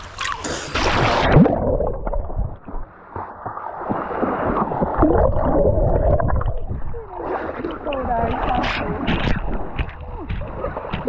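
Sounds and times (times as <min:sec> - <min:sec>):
underwater gurgling and bubbling: 0:00.0 - 0:11.0
river water splashing: 0:02.4 - 0:11.0.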